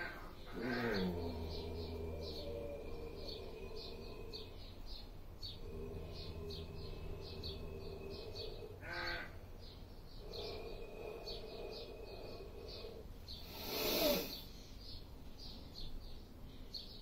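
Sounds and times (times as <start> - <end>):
small bird chirping: 0.0 - 17.0
crow cawing: 8.8 - 9.4.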